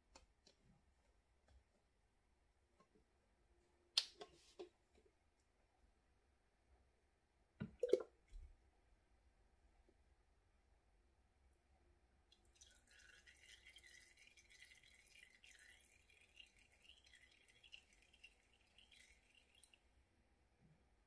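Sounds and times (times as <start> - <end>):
oil trickling and dripping: 12.3 - 19.9.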